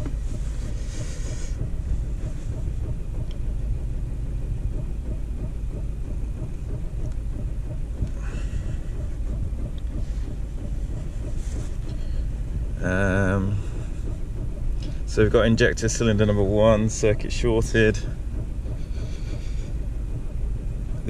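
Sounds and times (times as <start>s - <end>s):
diesel engine idling roughly: 0.0s - 21.0s.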